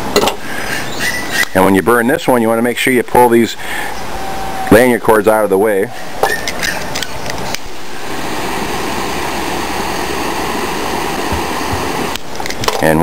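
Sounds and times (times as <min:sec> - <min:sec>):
torch lighter flame hissing: 0:07.3 - 0:12.6.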